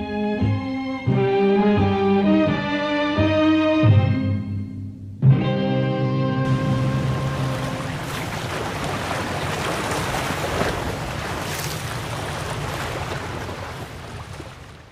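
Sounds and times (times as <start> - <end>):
music: 0.0 - 7.8
surf washing on pebbles: 6.5 - 14.9.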